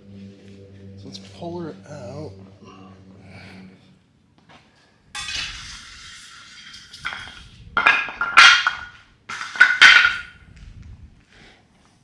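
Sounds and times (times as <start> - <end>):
metal scraping rattle: 5.2 - 10.4.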